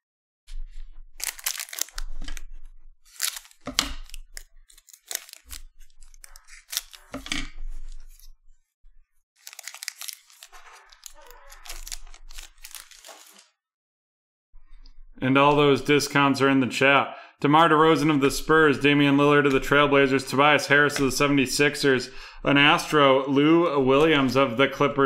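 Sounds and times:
scissors cutting plastic: 1.2 - 2.4, 3.1 - 7.5, 9.4 - 13.4
plastic wrapper crinkling: 1.2 - 2.5, 3.1 - 7.4, 9.4 - 13.5.

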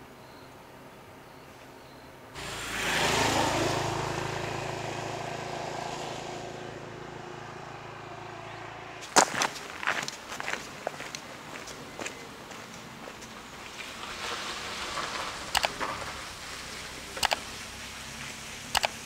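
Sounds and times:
vehicle engine passing by: 2.4 - 9.3, 13.4 - 19.0
footsteps on dirt trail: 9.0 - 16.1.

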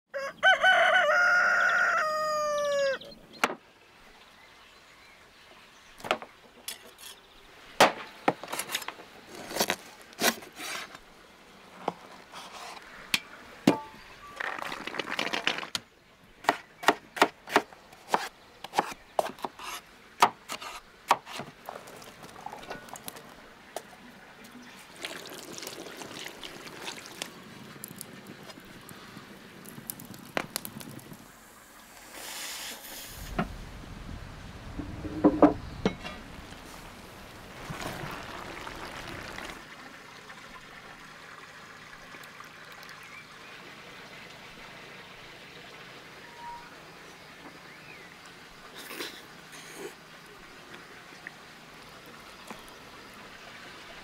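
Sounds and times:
rooster crowing: 0.1 - 3.0
dried chickpeas pouring into pot: 37.5 - 39.6.

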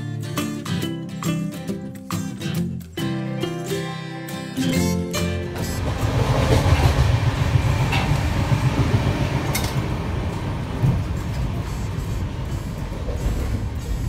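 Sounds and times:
train wheels rumbling on track: 5.6 - 14.0.

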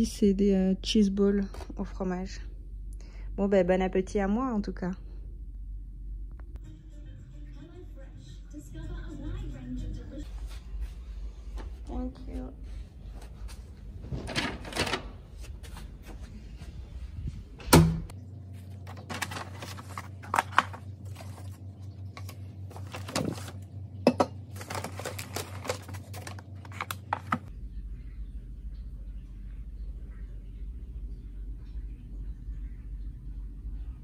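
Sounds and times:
paper bag rustling: 18.5 - 23.7, 24.4 - 27.5.

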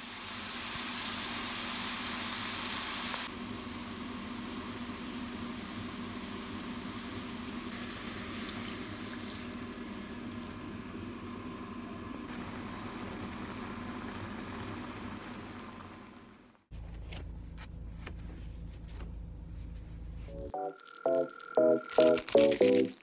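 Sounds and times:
pot bubbling on stove: 3.2 - 16.6
low hum: 16.8 - 22.9.

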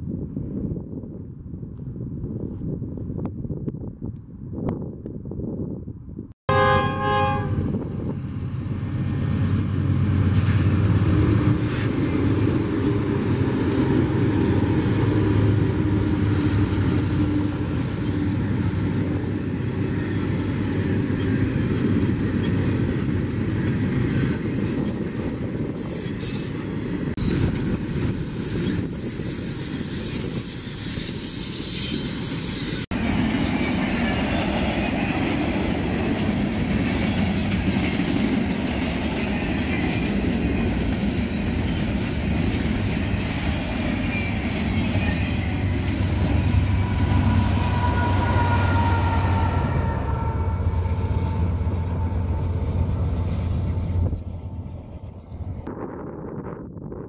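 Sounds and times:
train rumble and rail clatter: 0.0 - 56.0
train horn blast: 6.5 - 7.9, 44.7 - 54.3
high wheel squeal: 17.7 - 23.4, 41.7 - 54.3.

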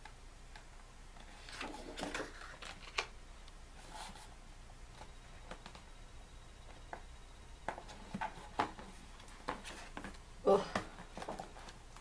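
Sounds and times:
paper page rustling: 1.2 - 3.1.

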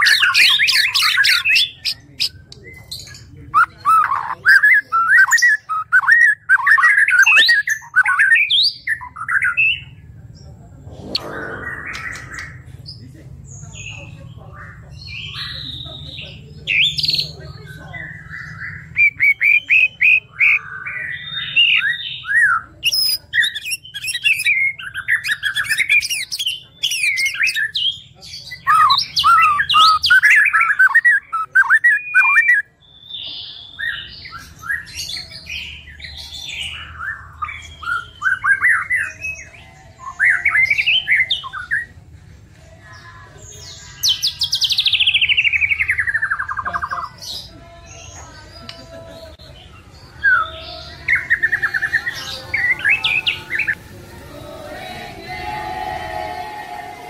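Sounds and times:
songbird singing whistled phrases: 28.6 - 39.5.

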